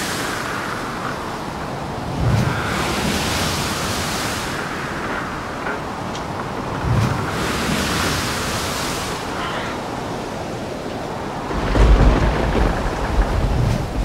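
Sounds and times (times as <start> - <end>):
wind: 0.0 - 14.0
deep rumble: 11.5 - 14.0.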